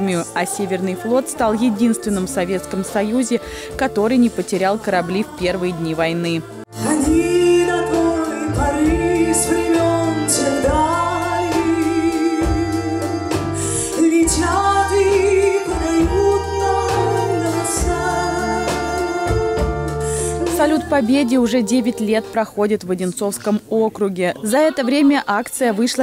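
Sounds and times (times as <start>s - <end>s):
woman singing with vibrato: 0.0s - 22.9s
live band with horns and drums: 6.4s - 22.3s.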